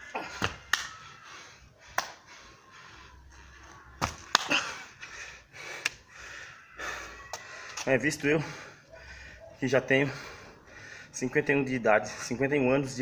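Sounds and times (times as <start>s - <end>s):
thumps of landing on concrete: 0.2s - 0.9s, 4.0s - 4.7s.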